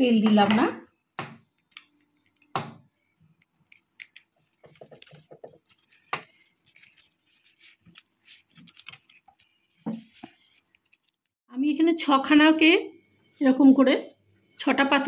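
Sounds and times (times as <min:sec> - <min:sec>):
banana leaf rustling and crinkling: 0:03.7 - 0:11.4.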